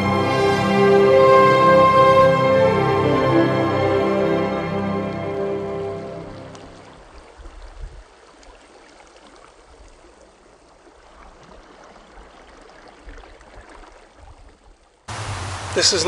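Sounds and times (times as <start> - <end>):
seawater lapping among pebbles: 6.0 - 16.0
low rumbles: 15.1 - 16.0.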